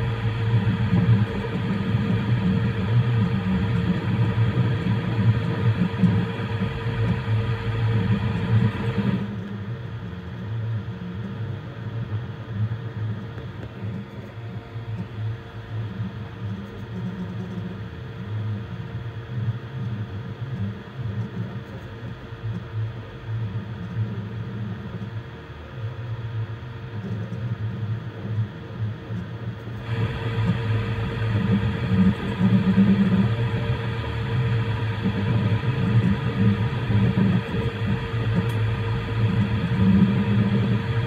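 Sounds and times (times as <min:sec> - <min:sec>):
fan whirring: 0:00.0 - 0:10.3, 0:29.5 - 0:41.0
stepper motors humming: 0:29.8 - 0:41.0.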